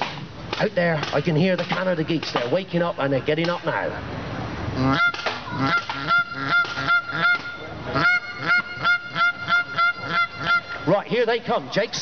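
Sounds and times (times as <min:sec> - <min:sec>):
geese honking: 0:04.8 - 0:11.3.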